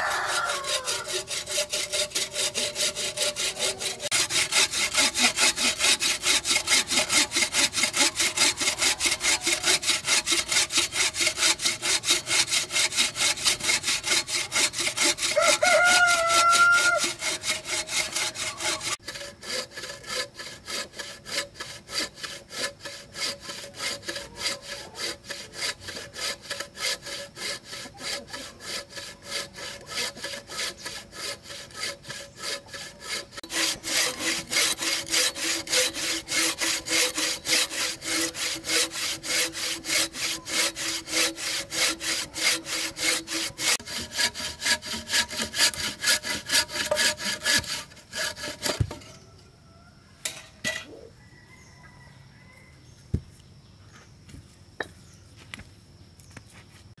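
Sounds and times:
bow saw cutting log: 0:00.0 - 0:49.3.

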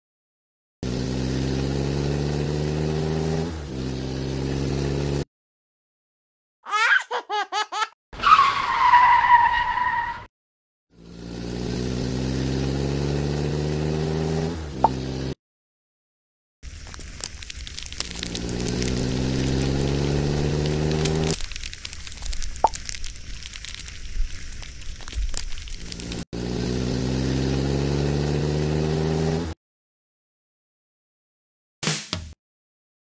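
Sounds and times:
engine revving: 0:00.8 - 0:05.3, 0:10.9 - 0:15.4, 0:17.8 - 0:21.4, 0:25.8 - 0:29.6
tyre squeal: 0:08.2 - 0:10.3.

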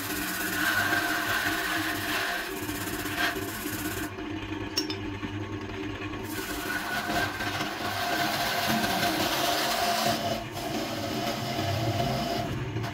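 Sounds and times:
gouge scraping spinning wood: 0:00.0 - 0:04.6, 0:06.0 - 0:12.9
wood lathe humming: 0:00.0 - 0:04.6, 0:05.4 - 0:12.9.

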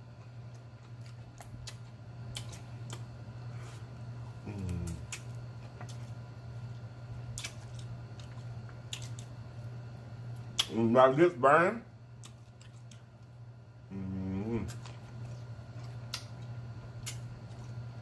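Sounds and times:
steady low hum: 0:00.0 - 0:18.0
chewing and lip smacks: 0:00.2 - 0:09.4, 0:10.4 - 0:10.8, 0:12.2 - 0:13.4, 0:14.5 - 0:18.0
person humming mm: 0:04.4 - 0:05.2, 0:13.9 - 0:14.8.

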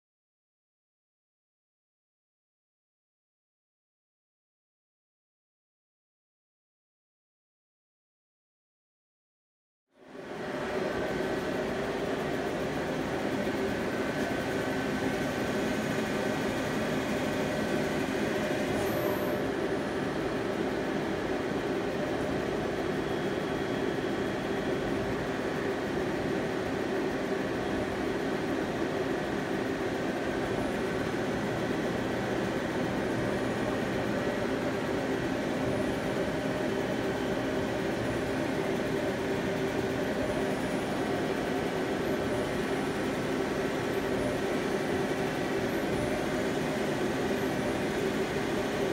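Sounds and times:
lathe running hum: 0:10.1 - 0:48.9.

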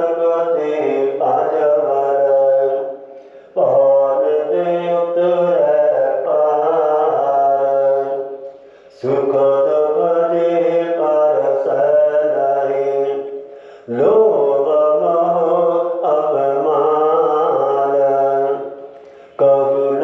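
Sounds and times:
person chanting intoned recitation: 0:00.0 - 0:20.0.

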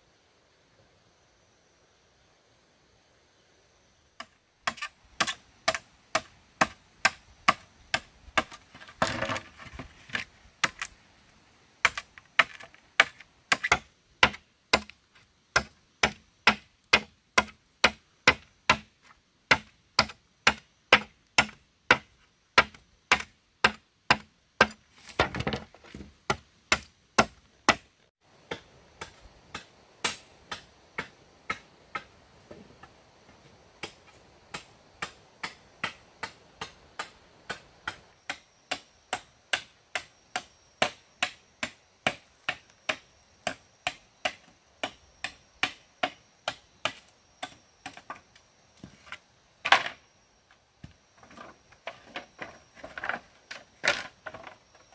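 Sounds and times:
machete chopping bamboo: 0:04.2 - 0:09.5, 0:11.8 - 0:18.9, 0:19.5 - 0:32.1, 0:33.8 - 0:48.2.

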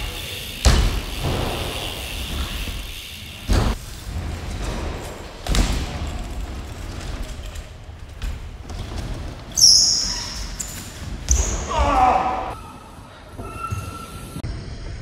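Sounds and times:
tyres rolling on wooden ramp: 0:00.0 - 0:09.6
bike landing thud: 0:00.6 - 0:07.3
high tyre squeal: 0:12.5 - 0:14.4.

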